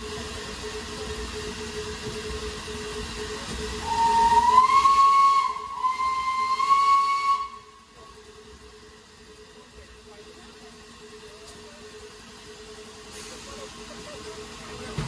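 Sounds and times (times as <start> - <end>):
train running noise: 0.0 - 15.0
steam whistle blast: 3.8 - 7.8.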